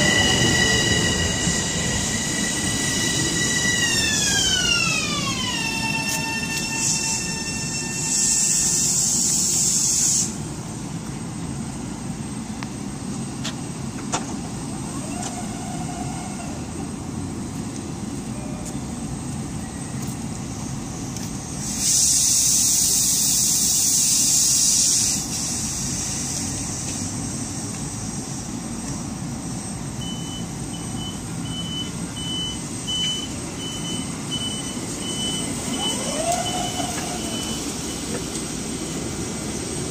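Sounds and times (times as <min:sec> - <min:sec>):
electric train humming: 0:00.0 - 0:39.9
compressed air hissing: 0:06.0 - 0:10.6, 0:21.5 - 0:28.7.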